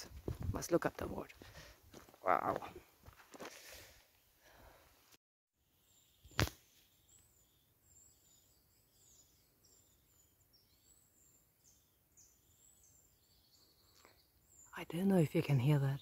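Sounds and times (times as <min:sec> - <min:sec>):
small birds chirping: 0:05.6 - 0:16.0
sharp click: 0:06.3 - 0:06.6.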